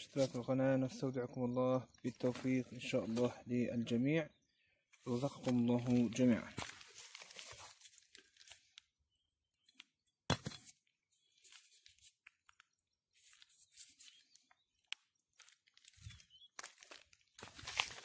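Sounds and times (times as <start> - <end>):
footsteps on dry soil: 2.0 - 3.4, 5.0 - 8.7, 10.3 - 18.0.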